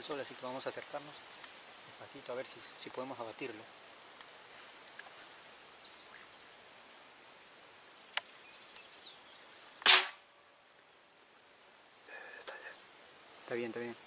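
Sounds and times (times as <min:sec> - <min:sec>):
faint outdoor background: 0:00.0 - 0:14.0
rifle shot: 0:09.8 - 0:10.2.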